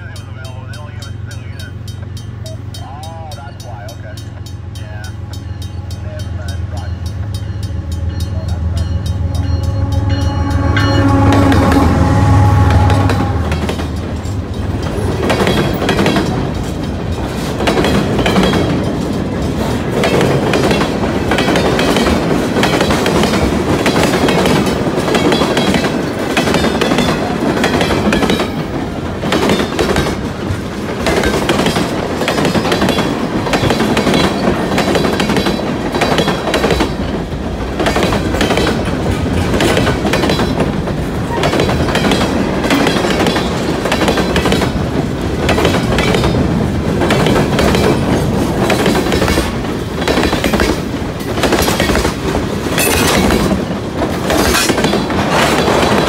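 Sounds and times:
diesel locomotive passing: 0:00.0 - 0:56.0
train wheels clacking over rail joints: 0:12.7 - 0:56.0.

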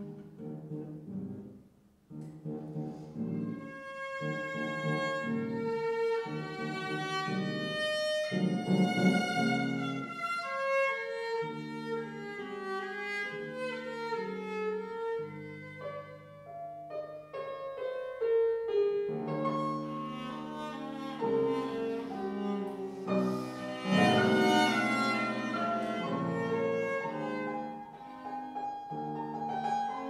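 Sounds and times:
cello: 0:00.0 - 0:30.0
fortepiano: 0:00.0 - 0:30.0
violin: 0:03.3 - 0:17.0, 0:19.1 - 0:30.0.

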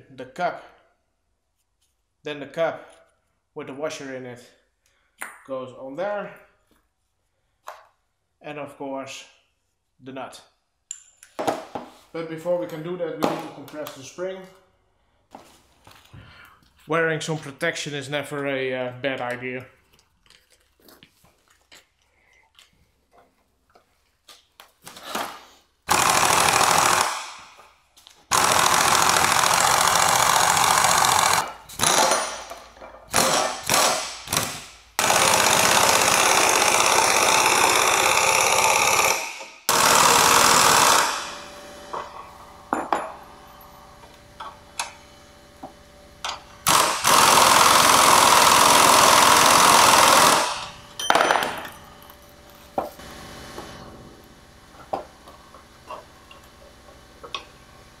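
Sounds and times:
pneumatic impact wrench bursts: 0:25.9 - 0:27.6, 0:28.3 - 0:32.5, 0:33.1 - 0:41.9, 0:46.3 - 0:50.8.

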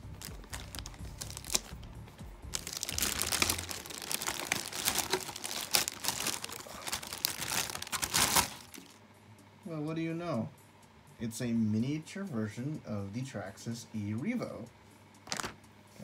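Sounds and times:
plastic bag crinkling: 0:00.0 - 0:01.8, 0:02.5 - 0:09.0, 0:15.3 - 0:15.6.

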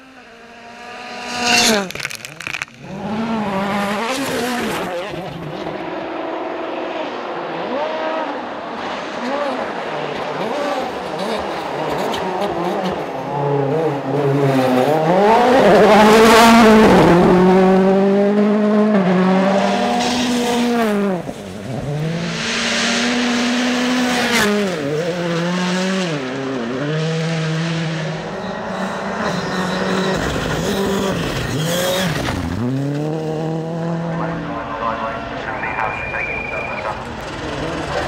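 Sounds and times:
rally car engines revving hard: 0:00.0 - 0:35.9, 0:36.8 - 0:38.0
sharp cracks: 0:01.7 - 0:02.8.

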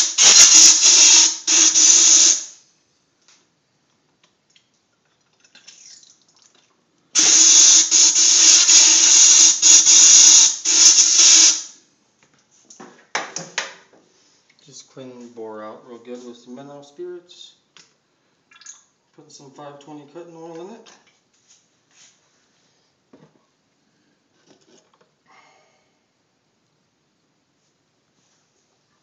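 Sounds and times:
compressed air hissing through barrel: 0:00.0 - 0:02.6, 0:07.2 - 0:11.8.

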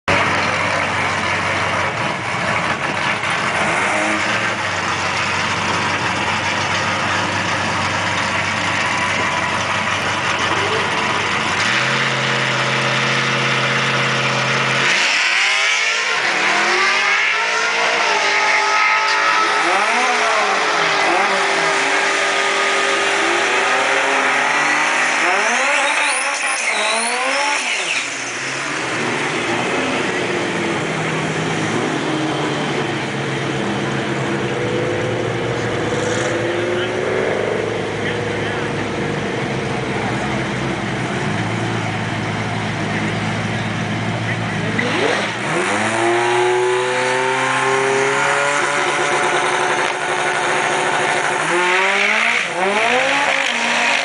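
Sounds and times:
race car engines revving: 0:00.0 - 0:54.0.

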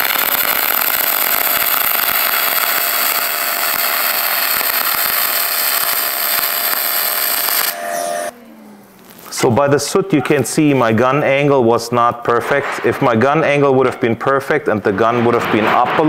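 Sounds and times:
welding arc crackling hiss: 0:00.0 - 0:08.3, 0:08.9 - 0:11.0.

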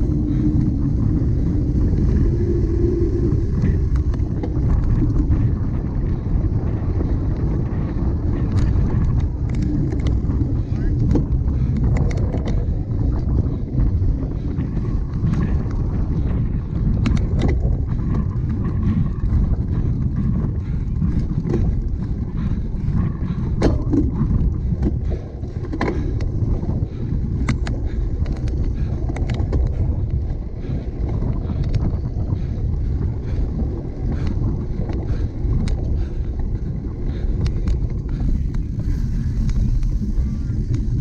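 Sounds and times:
bike clicking and rattling: 0:00.0 - 0:41.0
wind rumbling on microphone: 0:00.0 - 0:41.0.

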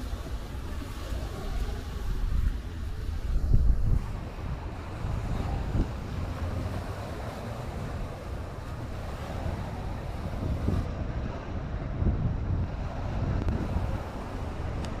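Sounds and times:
seaside wind hiss: 0:00.0 - 0:15.0
wind buffeting microphone: 0:00.0 - 0:15.0.

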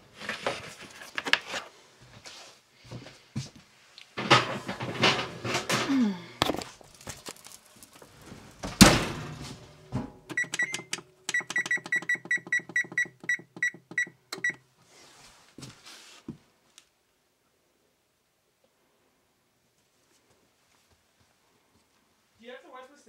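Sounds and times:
loud thunk: 0:08.6 - 0:10.2
control panel beeps: 0:10.3 - 0:14.6.

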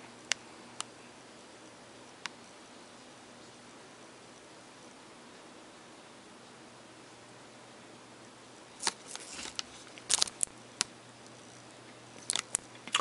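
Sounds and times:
faint steady hiss: 0:00.0 - 0:13.0
cards and paper clicking: 0:08.8 - 0:10.5.

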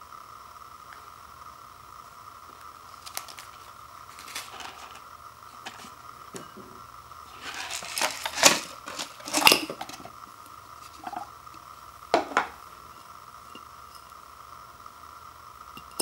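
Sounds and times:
paper cup set down: 0:04.2 - 0:05.0, 0:07.4 - 0:10.1, 0:12.1 - 0:12.6
noodle block scraping out of cup: 0:07.3 - 0:10.1.

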